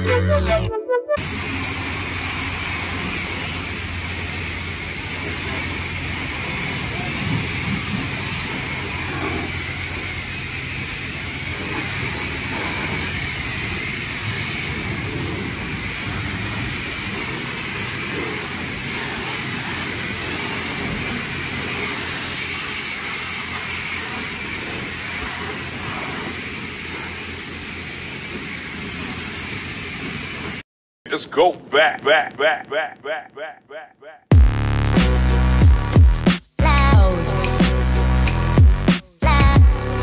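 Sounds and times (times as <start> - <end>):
water jets spraying: 1.2 - 30.6.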